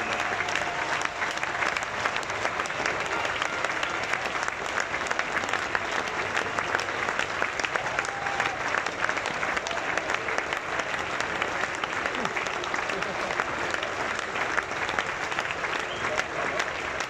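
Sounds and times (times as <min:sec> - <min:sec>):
crowd applauding: 0:00.0 - 0:17.0.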